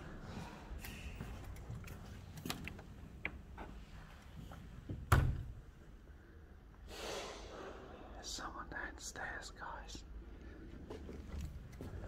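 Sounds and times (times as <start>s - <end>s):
door banging shut: 5.0s - 5.5s.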